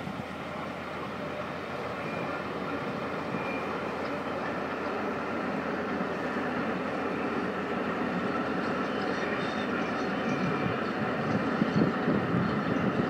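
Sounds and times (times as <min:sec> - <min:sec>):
steam train rumbling: 0:00.0 - 0:13.0.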